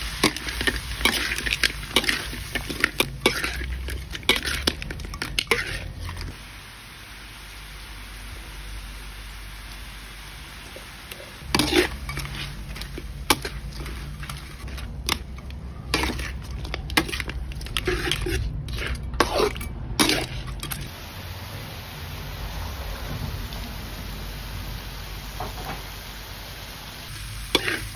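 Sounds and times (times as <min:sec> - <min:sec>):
utensil scraping a metal wok: 0:00.0 - 0:06.4, 0:11.4 - 0:20.9, 0:27.1 - 0:27.9
frying sizzle: 0:00.0 - 0:27.9.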